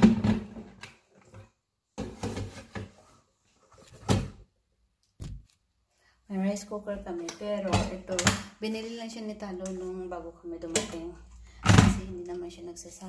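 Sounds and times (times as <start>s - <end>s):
kitchen knocks and clatters: 0.0s - 3.2s.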